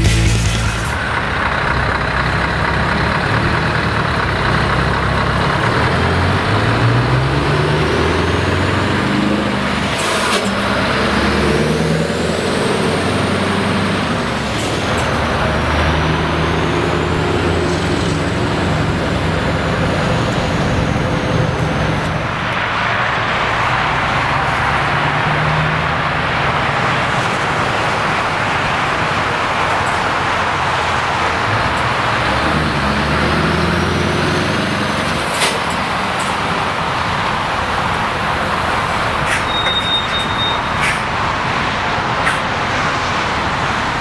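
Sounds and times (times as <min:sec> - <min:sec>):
truck engine pulling away: 0:00.0 - 0:44.0
faint high whistle: 0:39.4 - 0:40.8.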